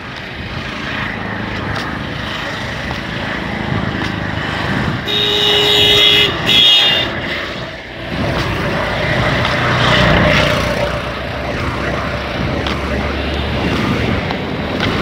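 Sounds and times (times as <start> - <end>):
vehicle engine and tyres: 0.0 - 15.0
vehicle horn blasts: 5.0 - 7.3.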